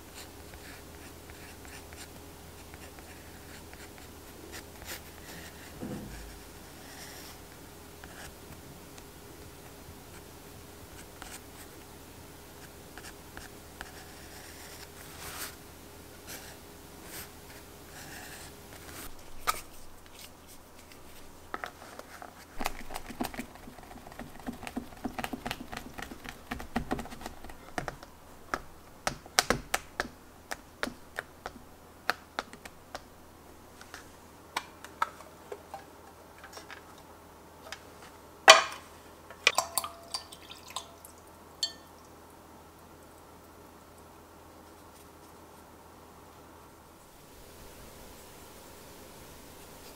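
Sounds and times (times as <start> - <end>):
paintbrush clinking against glass: 41.6 - 41.9.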